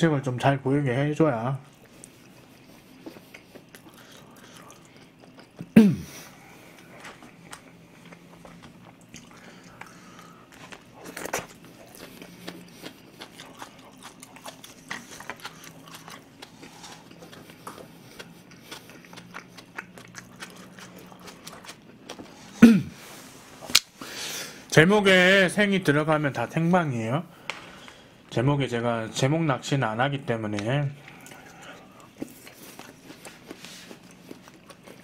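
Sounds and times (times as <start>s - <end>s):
man chewing with wet mouth noises: 1.6s - 24.7s, 31.0s - 35.0s.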